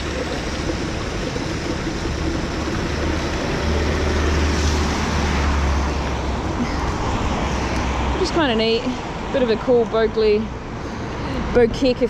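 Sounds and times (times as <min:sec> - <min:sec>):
tyres hissing on wet road: 0:00.0 - 0:12.0
vehicle engine rumble: 0:00.0 - 0:12.0.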